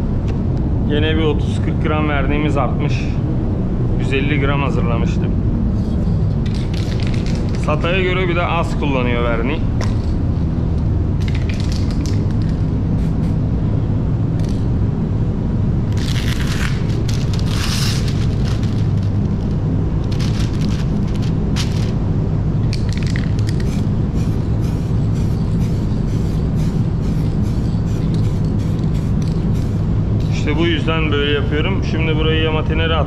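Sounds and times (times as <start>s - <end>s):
ventilation hum: 0.0s - 33.0s
aerosol spray hissing: 13.0s - 13.4s, 23.4s - 30.4s.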